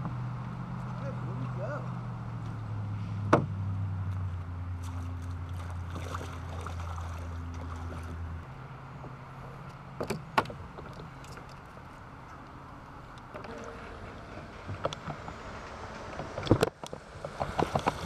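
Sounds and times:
light water noise: 0:04.1 - 0:09.8, 0:10.7 - 0:18.0.

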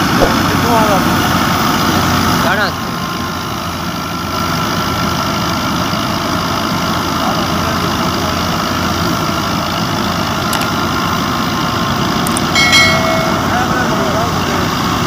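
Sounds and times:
tractor diesel engine running: 0:00.0 - 0:15.0
thresher drum running: 0:12.6 - 0:15.0.

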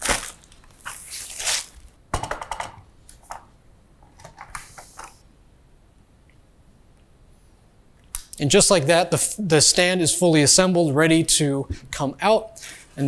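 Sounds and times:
packing wrap rustling: 0:00.0 - 0:02.0.

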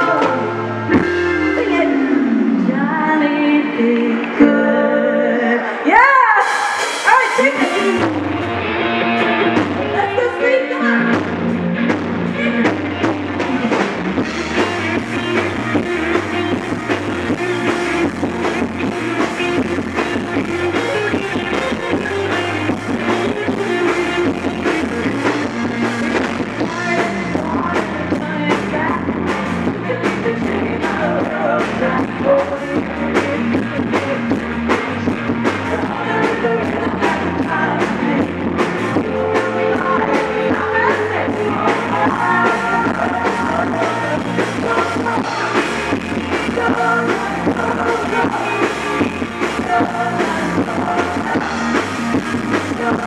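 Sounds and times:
person singing: 0:00.0 - 0:08.6, 0:14.3 - 0:53.0
guitar: 0:00.0 - 0:53.0
rock and roll song: 0:00.0 - 0:53.0
steady drum beat: 0:11.1 - 0:53.0.

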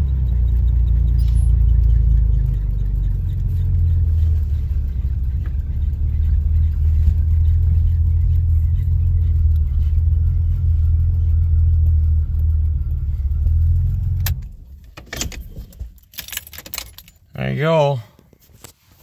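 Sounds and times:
car engine idling: 0:00.0 - 0:17.5
keys jingling: 0:14.9 - 0:17.3.

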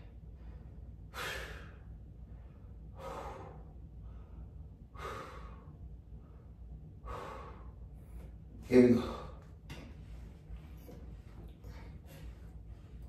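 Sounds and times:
man breathing hard: 0:00.0 - 0:09.7.

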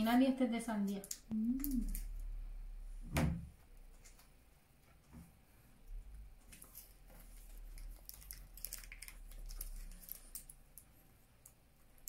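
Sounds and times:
plastic wrapper crinkling: 0:06.4 - 0:12.0.

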